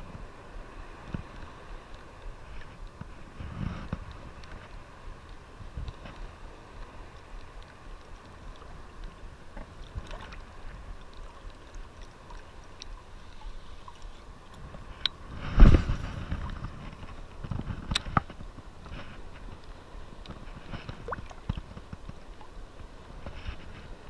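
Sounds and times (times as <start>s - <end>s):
surf water swishing: 0.0s - 24.0s.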